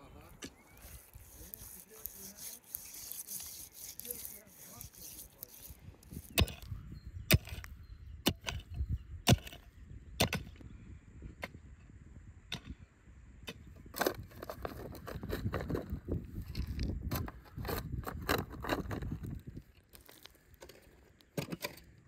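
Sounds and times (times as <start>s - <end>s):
shovel digging into stony soil: 0.2s - 8.7s, 9.3s - 9.6s, 13.5s - 22.0s.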